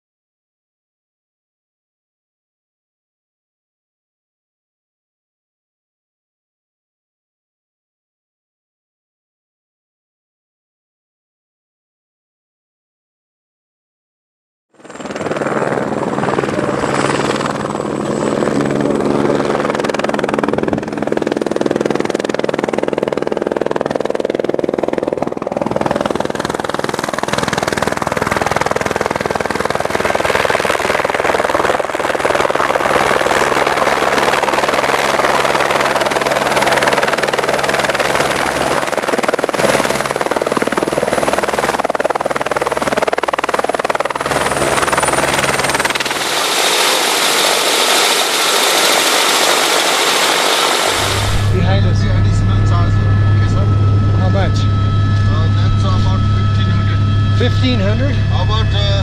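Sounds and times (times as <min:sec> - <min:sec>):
helicopter rotor running: 0:14.8 - 0:59.0.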